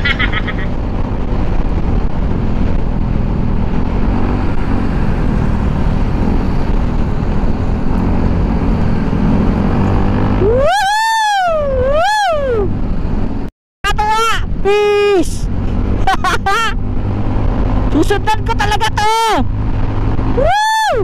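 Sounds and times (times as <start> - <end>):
motorcycle engine: 0.0 - 13.5, 14.2 - 21.0
wind noise: 0.0 - 13.5, 14.4 - 21.0
person yelling woo-hoo: 10.4 - 12.8, 20.4 - 21.0.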